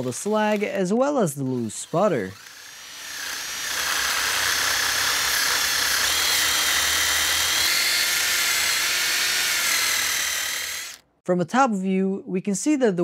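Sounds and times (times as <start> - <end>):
drill motor whine: 1.5 - 11.0.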